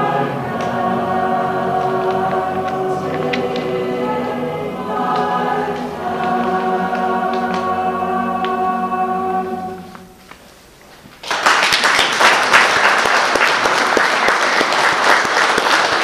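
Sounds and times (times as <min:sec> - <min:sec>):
mixed choir holding a chord: 0:00.0 - 0:10.3
audience applause: 0:11.2 - 0:16.0.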